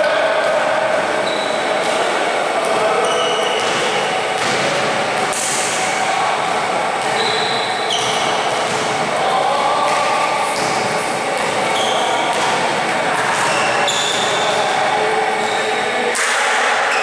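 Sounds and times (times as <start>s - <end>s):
sneakers squeaking on court: 1.2s - 2.0s, 2.6s - 4.8s, 7.0s - 9.1s, 9.9s - 14.8s
basketball dribbling: 2.6s - 5.4s, 6.4s - 9.2s.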